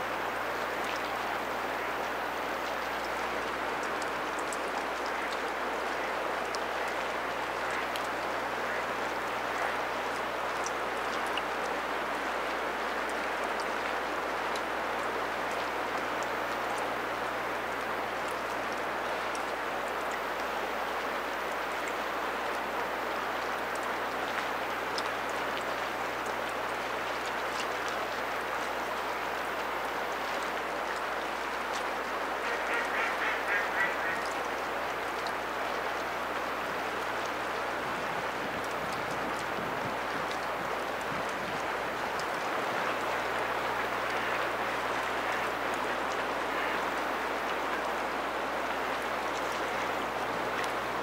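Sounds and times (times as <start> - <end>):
duck quacking: 32.4 - 34.2.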